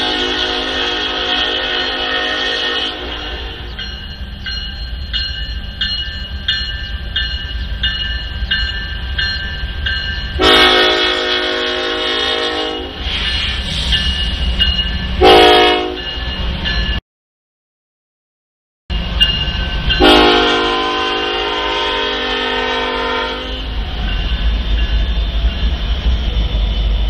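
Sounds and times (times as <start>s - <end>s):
locomotive air horn blasts: 0.0s - 3.8s, 10.4s - 13.0s, 15.2s - 16.0s, 20.0s - 23.7s
freight train locomotives rumbling: 0.0s - 17.0s, 18.9s - 27.0s
bell dinging: 3.7s - 10.4s.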